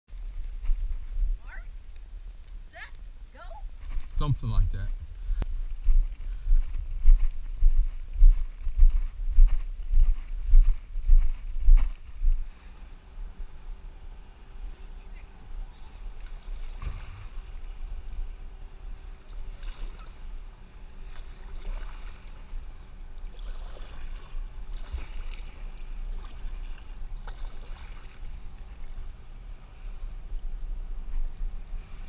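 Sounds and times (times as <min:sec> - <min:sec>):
steady low rumble: 0:00.1 - 0:32.0
paddle splashing into water: 0:16.2 - 0:17.5, 0:19.3 - 0:20.2, 0:21.0 - 0:22.6, 0:23.2 - 0:28.7.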